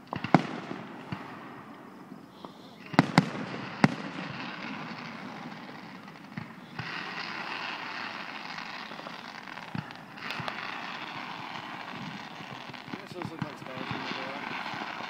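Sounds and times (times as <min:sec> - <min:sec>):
distant firework thumps: 0:09.6 - 0:15.0.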